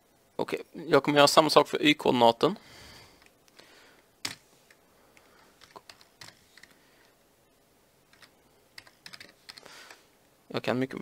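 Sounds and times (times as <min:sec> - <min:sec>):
faint keyboard typing: 0:03.1 - 0:07.2, 0:08.0 - 0:10.1.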